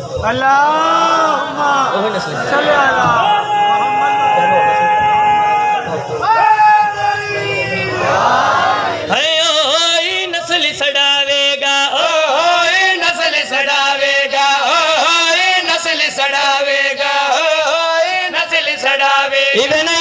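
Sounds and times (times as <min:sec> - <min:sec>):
man chanting into a microphone: 0:09.0 - 0:20.0.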